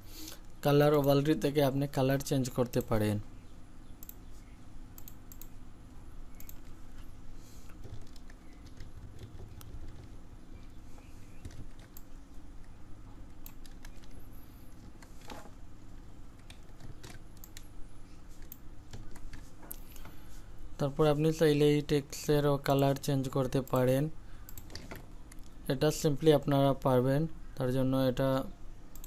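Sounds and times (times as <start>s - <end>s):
keyboard and mouse clicking: 5.0s - 5.6s, 6.3s - 6.8s, 7.7s - 14.2s, 16.4s - 17.7s, 18.3s - 19.8s.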